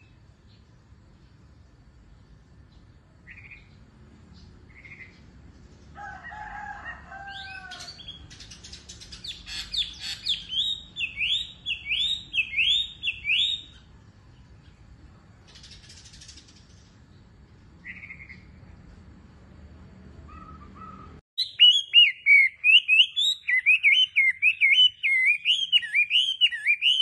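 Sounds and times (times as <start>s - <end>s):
songbird singing swooping whistles: 7.9s - 13.9s, 20.3s - 27.0s.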